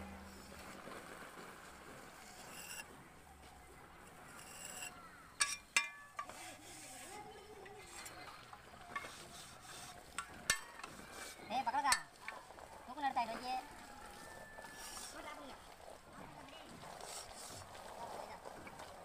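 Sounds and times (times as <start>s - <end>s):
trowel scraping mortar: 2.2s - 3.0s, 4.0s - 12.0s, 14.5s - 15.4s.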